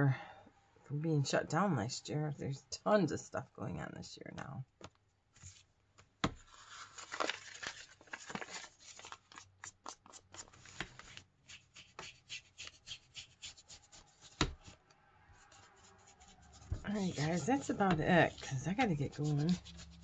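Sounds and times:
paper rustling: 6.3 - 14.8, 16.4 - 20.0
ink tool dabbing on paper: 11.5 - 14.8, 15.5 - 20.0.

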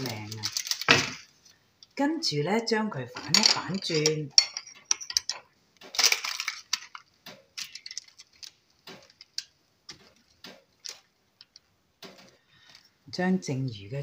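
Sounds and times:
parchment paper rustling: 0.0 - 1.6, 3.2 - 13.0
metal tongs clicking and scraping: 3.2 - 7.0, 7.6 - 8.5.

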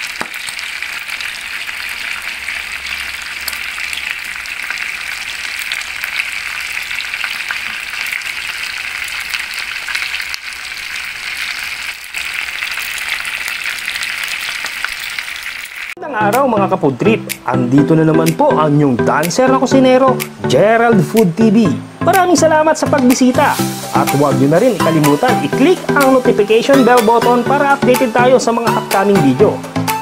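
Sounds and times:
chicken frying in hot oil: 0.0 - 16.0.

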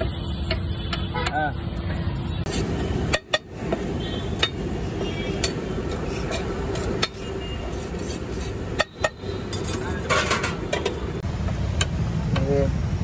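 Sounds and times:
steady background noise: 0.0 - 13.0
metal spatula scraping griddle: 4.8 - 10.8.

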